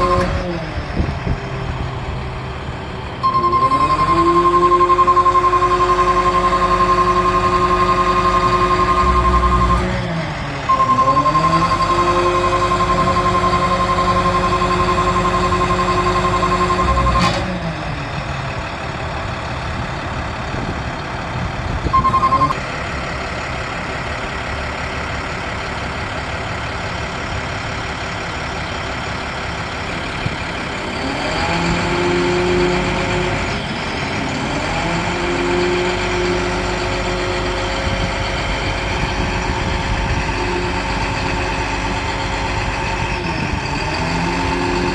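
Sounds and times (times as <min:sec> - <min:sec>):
diesel engine running: 0:00.0 - 0:44.9
steady high warning tone: 0:03.1 - 0:17.5, 0:21.8 - 0:22.6, 0:30.7 - 0:44.9.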